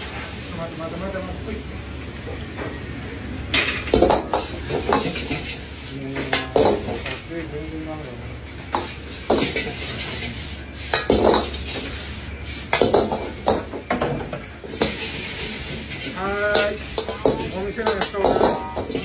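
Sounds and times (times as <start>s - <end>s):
gas burner rushing: 0.0s - 19.0s
metal ladle clanking on a wok: 12.7s - 19.0s.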